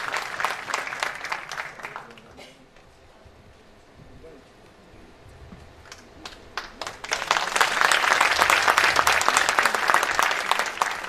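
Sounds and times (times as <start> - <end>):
audience applauding: 0.0 - 2.4, 5.8 - 11.0.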